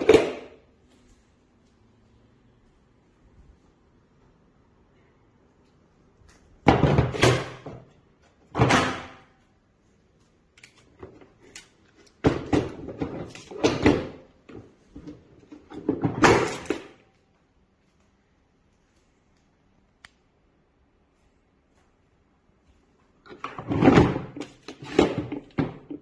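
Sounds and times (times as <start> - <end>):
plastic knocking and scraping: 23.3 - 26.0.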